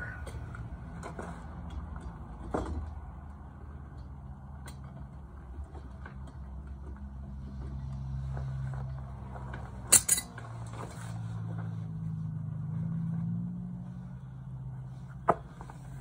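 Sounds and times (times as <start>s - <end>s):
metallic clink: 9.9s - 10.4s.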